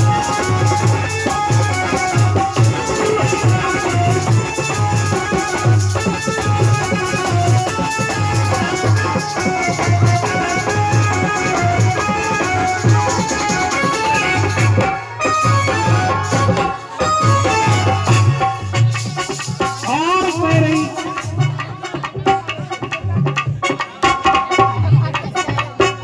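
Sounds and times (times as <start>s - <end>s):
electronic keyboard melody: 0.0s - 21.7s
repeating drum beat: 0.0s - 26.0s.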